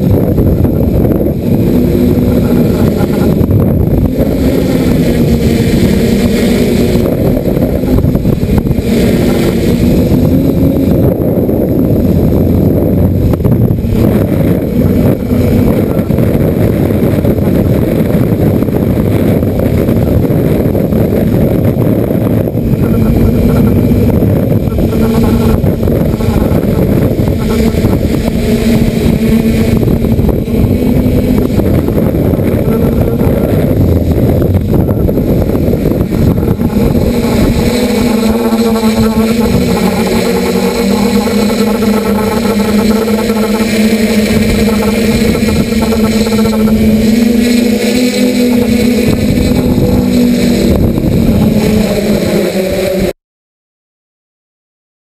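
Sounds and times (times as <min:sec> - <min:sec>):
wind buffeting on microphone: 0:00.0 - 0:53.1
drone motors and propellers humming: 0:00.0 - 0:53.2.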